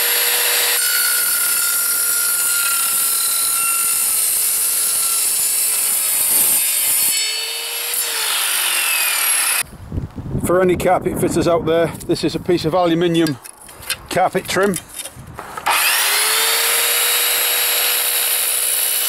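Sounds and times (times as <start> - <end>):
mitre saw cutting metal: 0.0 - 9.6, 15.4 - 19.0.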